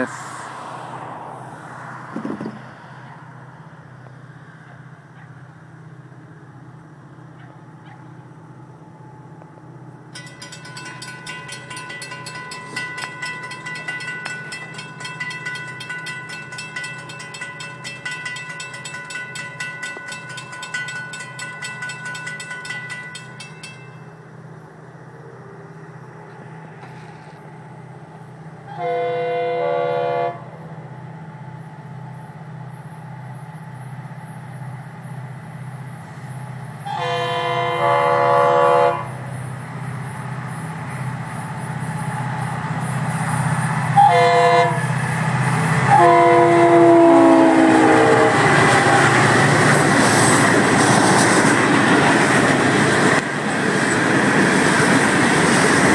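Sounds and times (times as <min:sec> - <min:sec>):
crossing warning bell ringing: 0:10.0 - 0:24.5, 0:40.8 - 0:50.8
train horn blast: 0:28.7 - 0:30.6, 0:36.8 - 0:39.2, 0:44.0 - 0:45.0, 0:45.9 - 0:49.4.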